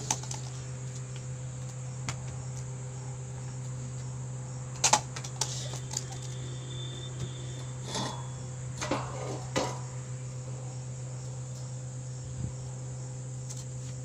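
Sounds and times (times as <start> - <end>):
high insect chirring: 0.0 - 8.8
constant low hum: 0.0 - 14.0.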